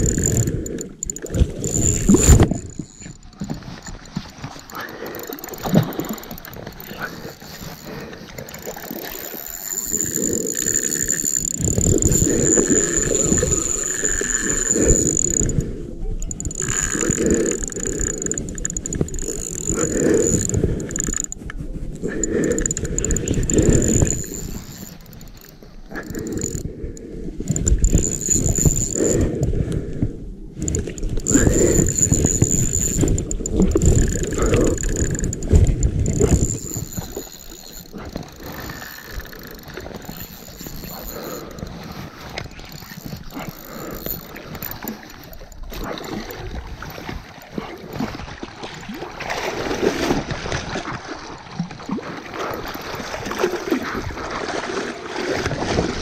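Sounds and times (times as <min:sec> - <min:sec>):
river water flowing: 0:00.0 - 0:15.6.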